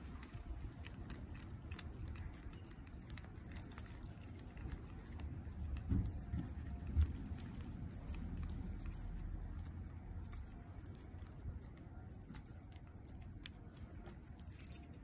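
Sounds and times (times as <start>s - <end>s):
cat licking wet clicks: 0.0s - 15.0s.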